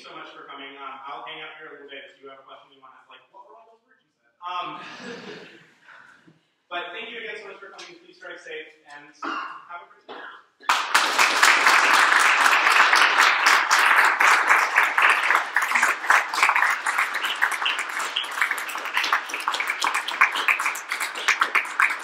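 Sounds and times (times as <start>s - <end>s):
audience applauding: 10.6s - 22.0s.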